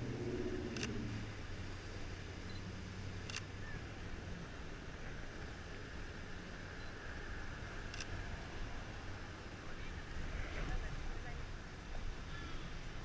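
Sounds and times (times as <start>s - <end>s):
camera shutter clicks: 3.3s - 3.5s.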